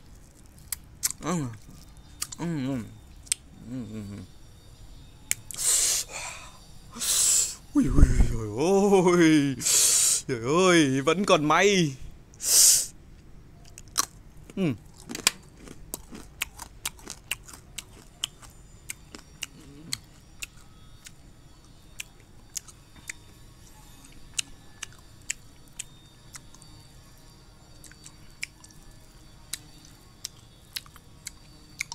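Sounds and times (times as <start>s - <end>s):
candy crunching while chewed: 0.0s - 4.3s, 13.6s - 31.9s.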